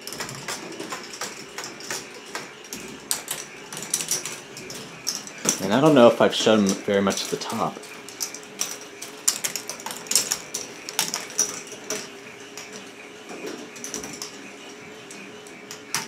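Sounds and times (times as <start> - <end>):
plastic balls clattering on track: 0.0 - 14.4
motor hum: 0.0 - 16.0.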